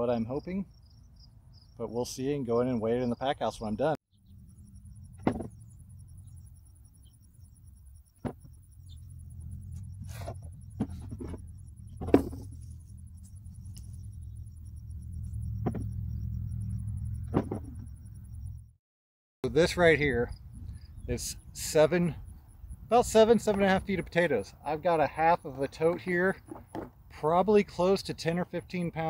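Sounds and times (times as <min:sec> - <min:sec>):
crickets trilling: 0:00.0 - 0:18.8, 0:19.5 - 0:29.0
low rumble: 0:08.6 - 0:18.8.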